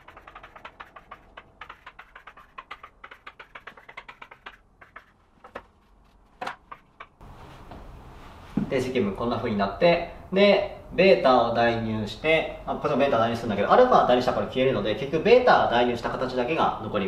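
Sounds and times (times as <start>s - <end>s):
chalk tapping on chalkboard: 0.0s - 7.2s.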